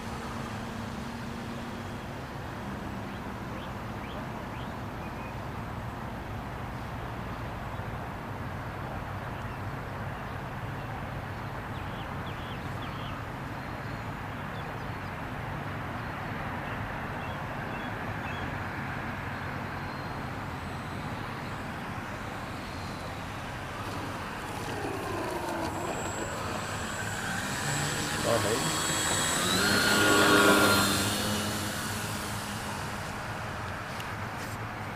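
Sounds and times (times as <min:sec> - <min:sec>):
model aeroplane motor whine: 0:18.0 - 0:34.9.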